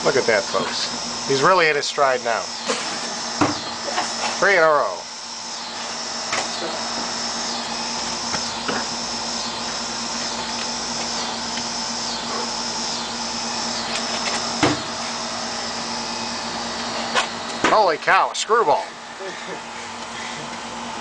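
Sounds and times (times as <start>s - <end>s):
pulsing high buzz: 0.0s - 21.0s
thump: 14.6s - 14.8s.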